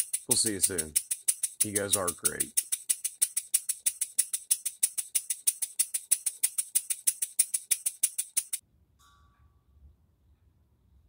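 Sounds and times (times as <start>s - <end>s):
model engine clicking: 0.0s - 8.6s.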